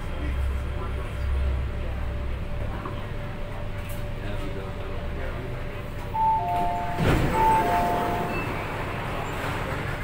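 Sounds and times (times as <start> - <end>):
stopped train humming: 0.0 - 10.0
two-note door chime: 6.2 - 8.7
sliding doors opening: 6.2 - 10.0.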